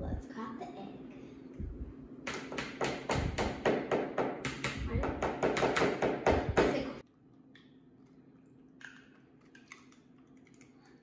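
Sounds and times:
low hum: 0:00.0 - 0:02.2.

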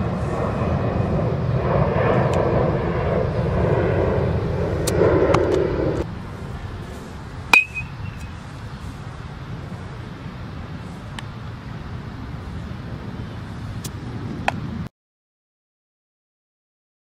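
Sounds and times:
outdoor rumble: 0:00.0 - 0:14.9
metal bat hitting ball: 0:07.5 - 0:08.3.

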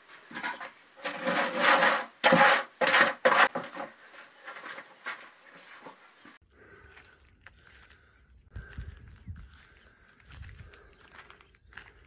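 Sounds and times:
rough scraping strokes: 0:00.0 - 0:06.3.

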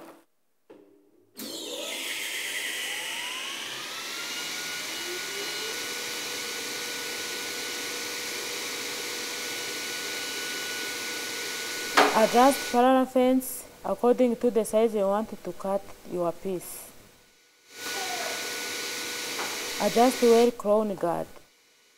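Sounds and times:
panel saw motor whining: 0:01.4 - 0:12.8.

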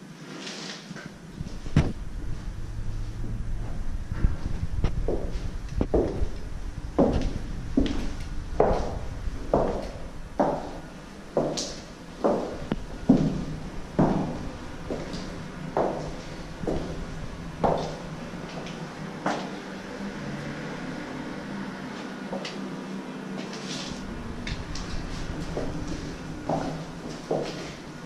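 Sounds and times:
echoing footsteps on hard floor: 0:04.2 - 0:19.5, 0:24.6 - 0:27.8.

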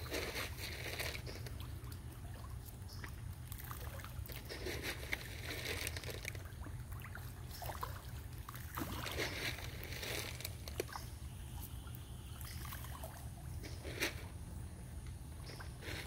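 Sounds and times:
fish slurps and clicks: 0:00.0 - 0:11.8
fish splashing water: 0:00.0 - 0:14.2.

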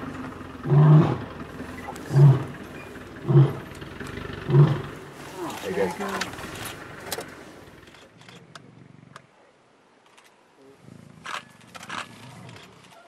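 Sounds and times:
lions growling while fighting: 0:00.6 - 0:06.8, 0:10.8 - 0:12.8.

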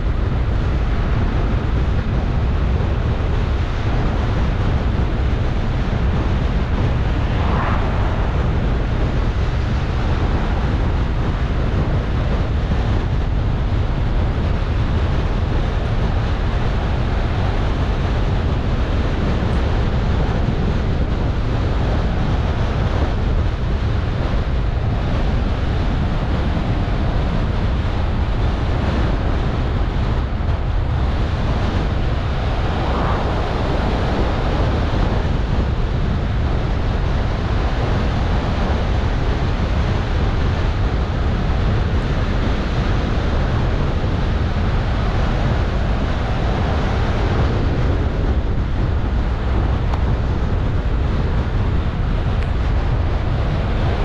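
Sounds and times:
car road rumble: 0:00.0 - 0:54.0
wind rushing hiss: 0:06.0 - 0:10.4, 0:30.3 - 0:35.0.

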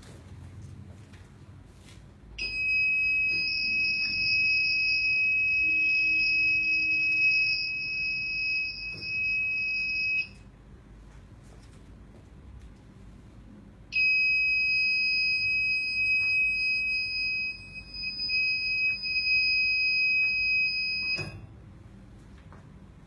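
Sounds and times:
high-pitched electronic buzzer: 0:02.4 - 0:10.4, 0:14.0 - 0:21.5.

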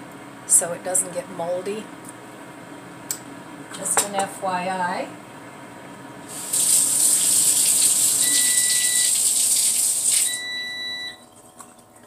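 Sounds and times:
faucet running water: 0:06.3 - 0:12.0
cooking timer beeps: 0:07.7 - 0:09.5, 0:10.1 - 0:11.3.

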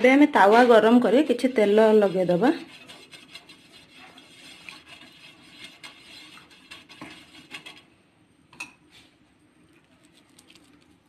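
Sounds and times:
brush scraping on a griddle: 0:01.8 - 0:07.9.

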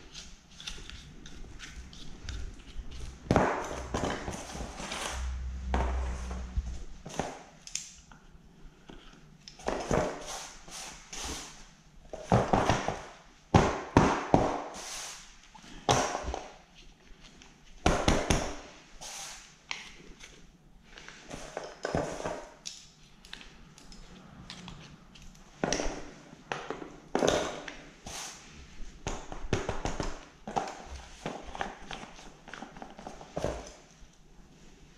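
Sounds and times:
low rumble: 0:02.8 - 0:07.1.

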